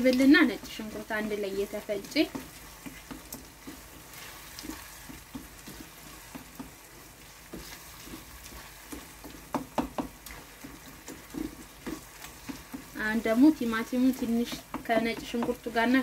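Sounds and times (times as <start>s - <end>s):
food sizzling in a pan: 0.0s - 16.0s
wooden spoon scraping a pan: 0.0s - 16.0s
spoon knocking against pan: 8.9s - 12.9s, 14.3s - 15.8s.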